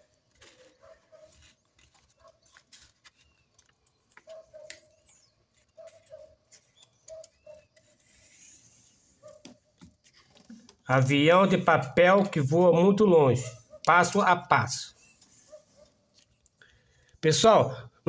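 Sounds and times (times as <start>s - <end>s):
paper rustling and crinkling: 0.0s - 10.8s.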